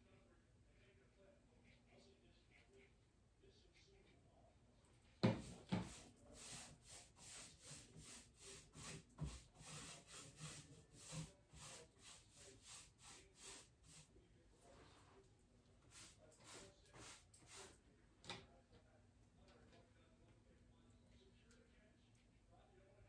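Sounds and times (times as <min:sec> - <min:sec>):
paintbrush stroking on wood: 0:05.3 - 0:14.1, 0:15.9 - 0:17.8.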